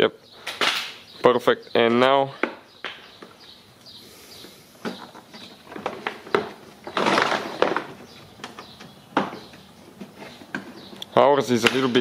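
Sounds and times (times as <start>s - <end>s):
plastic scraping: 4.8s - 11.0s.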